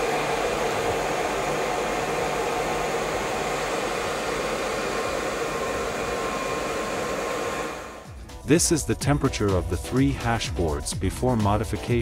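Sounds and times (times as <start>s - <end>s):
cooling fans whirring: 0.0s - 8.1s.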